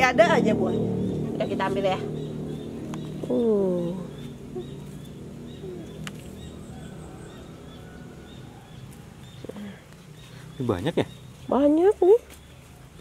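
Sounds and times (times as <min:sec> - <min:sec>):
faint outdoor background noise: 0:00.0 - 0:13.0
small bird chirping: 0:00.3 - 0:13.0.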